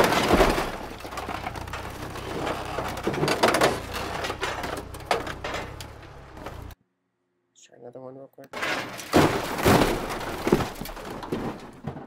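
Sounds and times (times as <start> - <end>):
forklift engine hum: 0.0 - 6.8
metal scraping and crunching: 0.0 - 6.8, 8.6 - 12.0.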